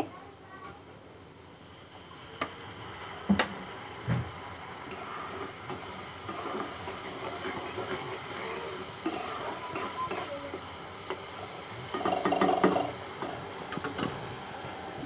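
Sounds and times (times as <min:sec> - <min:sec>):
masala simmering: 0:00.0 - 0:15.0
spatula knocking pan: 0:11.9 - 0:12.9.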